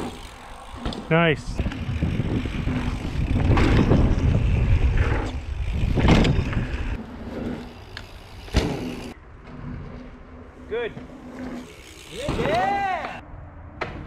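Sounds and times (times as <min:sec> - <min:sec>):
wind rushing over microphone: 0:00.0 - 0:07.0
bike tyres rumbling over dirt: 0:00.0 - 0:13.2.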